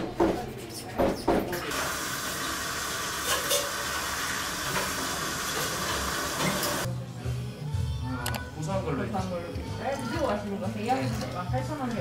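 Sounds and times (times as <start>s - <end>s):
faucet water running into a sink: 1.6s - 6.9s.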